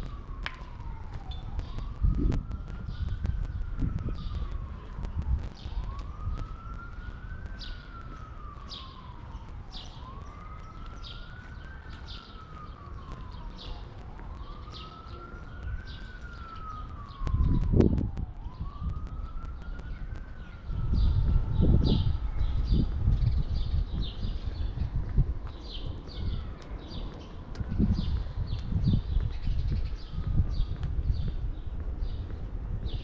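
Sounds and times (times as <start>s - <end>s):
low rumble: 0.0s - 9.6s, 13.2s - 25.0s
siren wailing: 0.0s - 24.9s.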